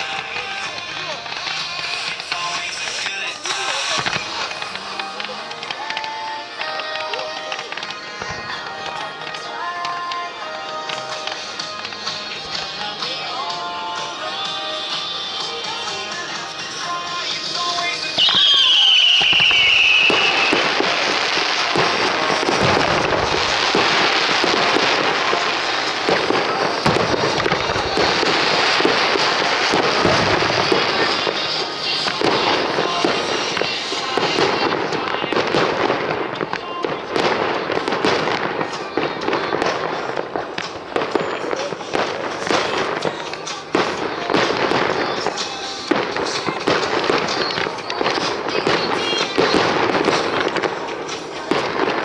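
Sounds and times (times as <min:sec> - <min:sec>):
fireworks crackling: 0:00.0 - 0:52.0
fireworks launching and bursting: 0:00.0 - 0:52.0
music playing: 0:00.0 - 0:52.0
high gliding whistle: 0:18.2 - 0:20.9.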